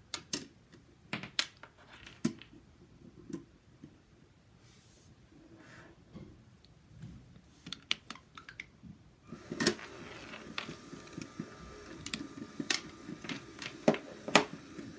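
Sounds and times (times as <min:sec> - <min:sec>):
toy motor whirring: 0:09.3 - 0:14.9
plastic parts rattling: 0:09.4 - 0:14.9.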